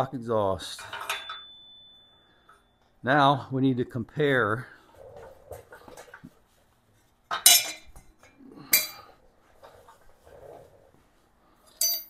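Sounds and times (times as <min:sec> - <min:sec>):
metal pipes clinking: 0:00.7 - 0:02.9, 0:07.3 - 0:09.2, 0:11.7 - 0:12.0.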